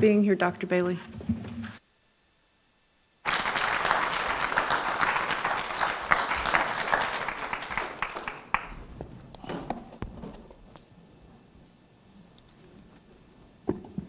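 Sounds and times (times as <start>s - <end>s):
audience applauding: 3.2s - 9.0s.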